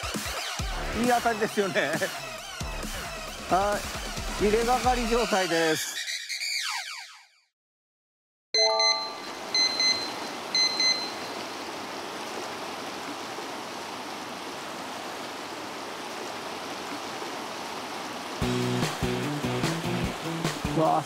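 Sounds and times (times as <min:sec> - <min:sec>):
high beeps: 0:08.6 - 0:11.2
short chime of tones: 0:08.6 - 0:11.2.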